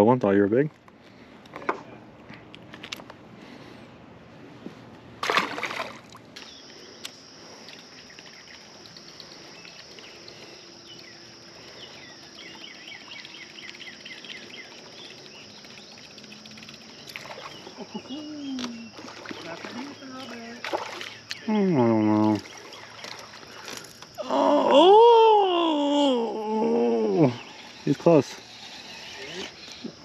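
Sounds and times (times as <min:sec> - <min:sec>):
bird chirping: 0:07.9 - 0:23.9.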